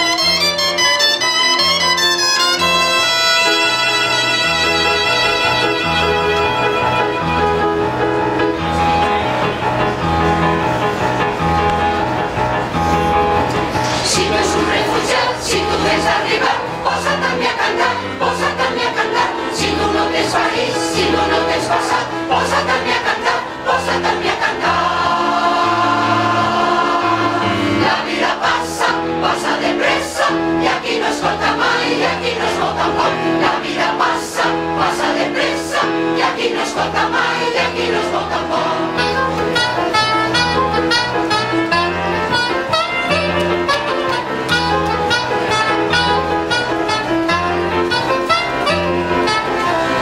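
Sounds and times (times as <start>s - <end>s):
brass instruments: 0.0s - 50.0s
keyboard: 0.0s - 50.0s
mixed choir singing: 2.6s - 11.0s, 13.6s - 50.0s.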